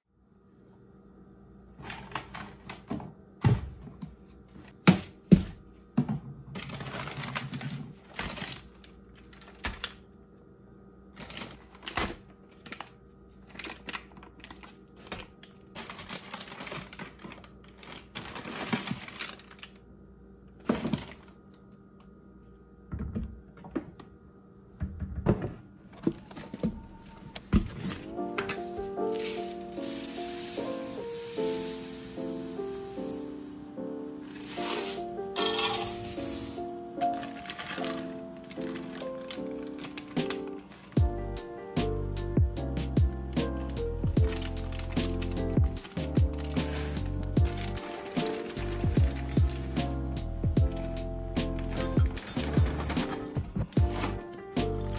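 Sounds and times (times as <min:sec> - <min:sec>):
plastic packaging crinkling: 0:06.6 - 0:10.1, 0:11.1 - 0:19.9, 0:27.9 - 0:33.6, 0:34.2 - 0:41.0, 0:44.2 - 0:54.9.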